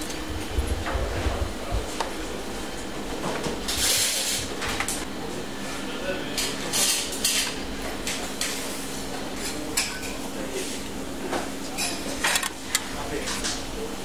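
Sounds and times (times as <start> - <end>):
steady low hum: 0.0 - 14.0
dishes and utensils clattering: 6.4 - 8.5, 11.3 - 12.5.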